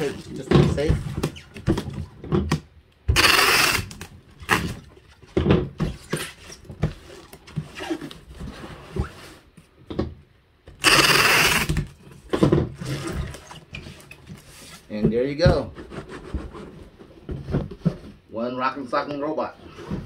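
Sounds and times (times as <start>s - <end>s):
packing tape pulled off roll: 10.8s - 11.9s.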